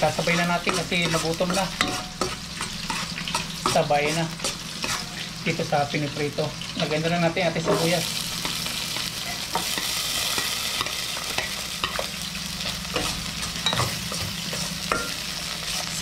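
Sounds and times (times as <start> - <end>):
onion sizzling in oil: 0.0 - 16.0.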